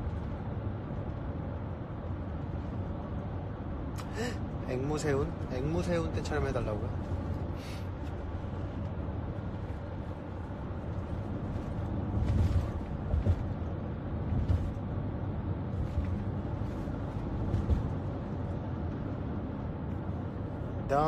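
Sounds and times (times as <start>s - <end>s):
car road and engine rumble: 0.0s - 21.0s
low bumps: 6.8s - 20.6s.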